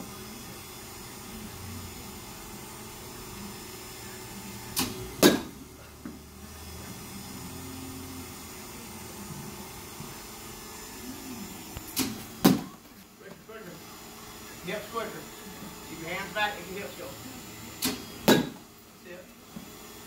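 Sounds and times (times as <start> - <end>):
baseball bat cracking ball: 4.8 - 5.5, 17.8 - 18.6.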